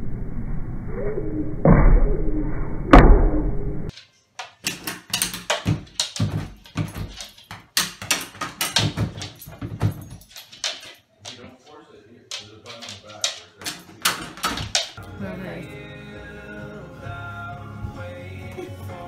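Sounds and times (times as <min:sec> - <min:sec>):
loud bang: 0:01.4 - 0:03.9
pet door flap clacking: 0:04.6 - 0:11.4, 0:12.3 - 0:15.0.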